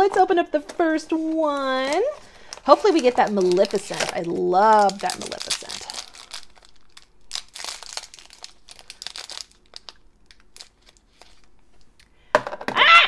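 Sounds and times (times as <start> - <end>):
foil wrapper crinkling and tearing: 1.6 - 12.0.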